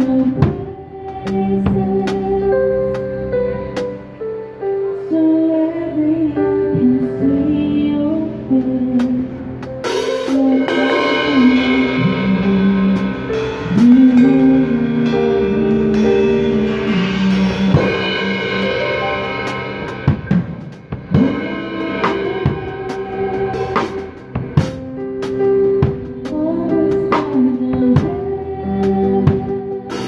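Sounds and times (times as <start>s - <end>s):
live band music with singing: 0.0s - 30.0s
drum hits and cymbal washes: 9.0s - 28.2s.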